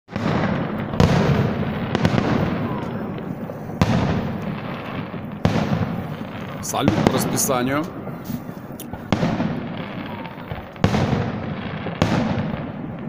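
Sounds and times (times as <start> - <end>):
firework shells bursting: 0.1 - 13.0
continuous rumble: 0.5 - 10.8.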